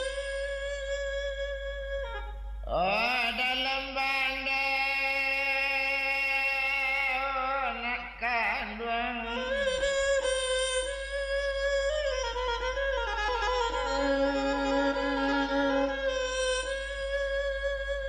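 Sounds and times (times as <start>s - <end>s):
fiddle accompanying: 0.0s - 2.7s, 9.1s - 18.0s
person singing: 2.7s - 16.4s.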